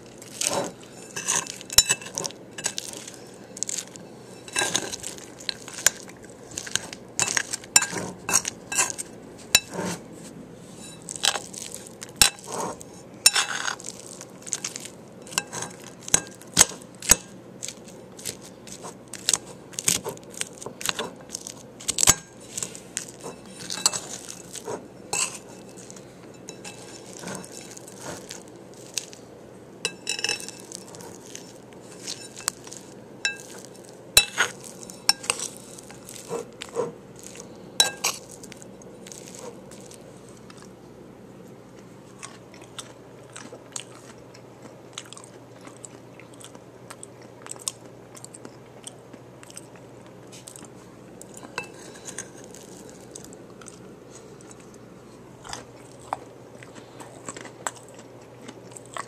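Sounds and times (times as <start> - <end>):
utensil scraping against dish: 0.4 - 3.3, 4.1 - 5.0, 6.8 - 10.1, 22.4 - 28.3.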